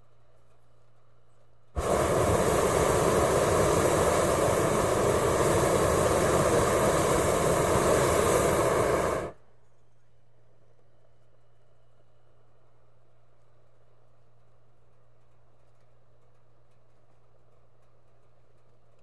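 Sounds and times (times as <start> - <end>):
balloon burner blast: 1.8 - 9.4
pilot light hissing: 1.8 - 9.4.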